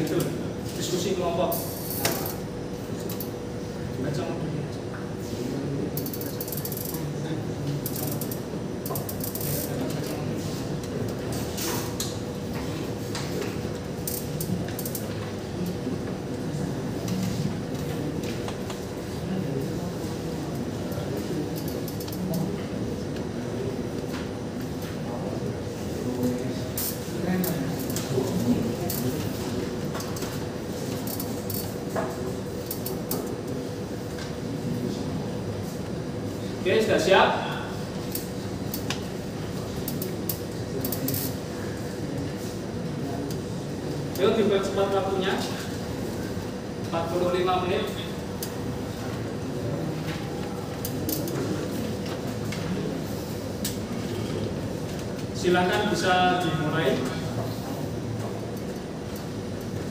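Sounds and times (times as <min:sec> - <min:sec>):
steady low hum: 0:00.0 - 0:59.9
rapid ratchet-like mechanical clicking: 0:06.0 - 0:07.0, 0:07.8 - 0:10.0.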